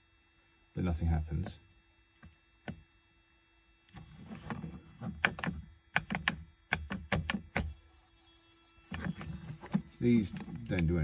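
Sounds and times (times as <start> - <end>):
plastic switch clicking: 5.2 - 7.7.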